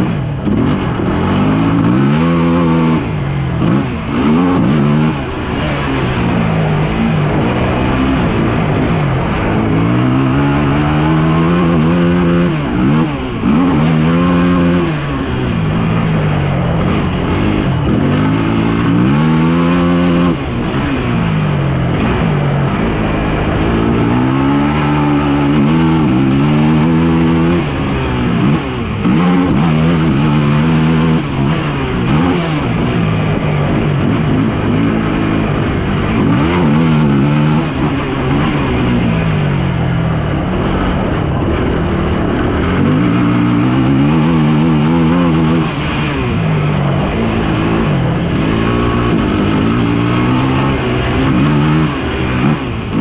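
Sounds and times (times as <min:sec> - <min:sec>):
off-road engine revving: 0:00.0 - 0:53.0
steady rush of noise: 0:00.0 - 0:53.0.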